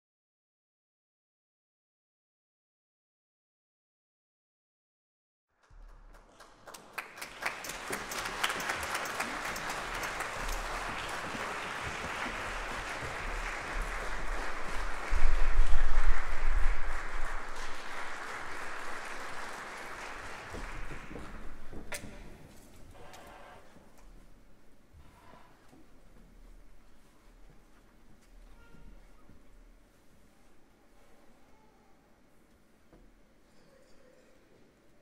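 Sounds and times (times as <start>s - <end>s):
audience applauding: 5.6s - 21.8s.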